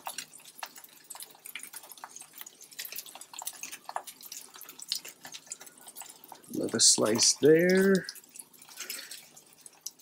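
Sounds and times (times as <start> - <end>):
burgers sizzling on a griddle: 0.0 - 10.0.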